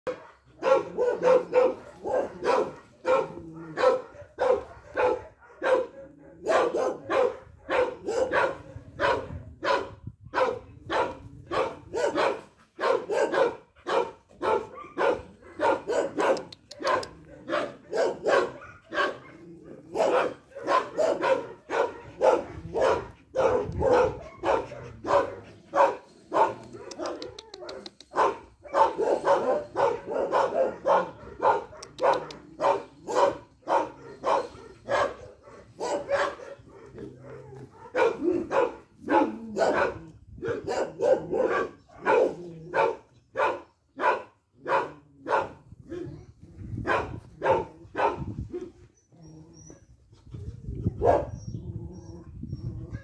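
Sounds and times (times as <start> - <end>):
dog barking: 0.1 - 46.2, 46.8 - 48.7, 51.0 - 51.4.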